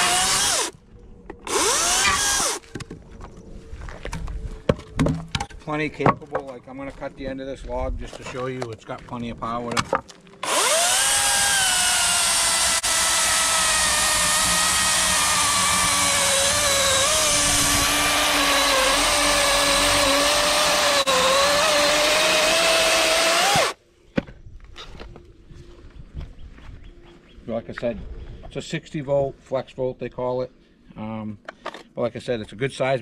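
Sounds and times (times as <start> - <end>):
battery chainsaw cutting log: 0.0 - 0.8, 1.5 - 2.6, 10.4 - 23.8.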